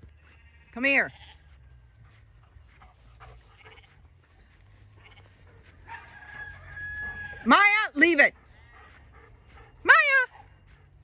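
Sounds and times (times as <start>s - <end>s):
dog panting: 1.9s - 6.0s, 8.1s - 11.0s.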